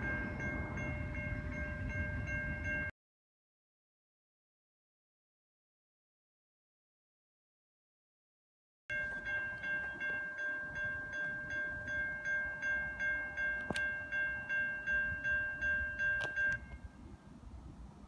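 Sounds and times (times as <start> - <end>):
railroad crossing bell ringing: 0.0 - 2.9, 8.9 - 17.4.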